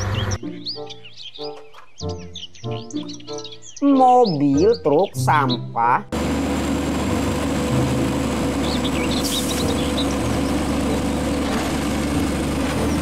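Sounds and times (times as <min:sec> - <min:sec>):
diesel engine running: 0:00.0 - 0:00.4, 0:06.1 - 0:13.0.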